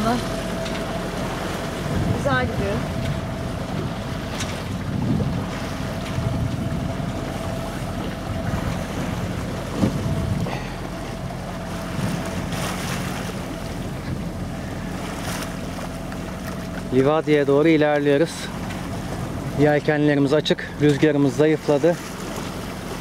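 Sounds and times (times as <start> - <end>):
steady low hum: 0.0 - 23.0
water washing past a hull: 0.0 - 23.0
wind rushing over microphone: 1.8 - 10.6.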